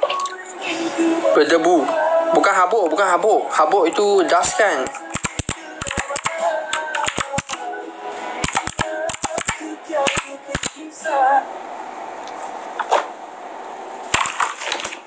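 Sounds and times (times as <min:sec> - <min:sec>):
background music with held notes: 0:00.0 - 0:11.5
sharp clicks and taps: 0:04.8 - 0:07.6, 0:08.4 - 0:10.8.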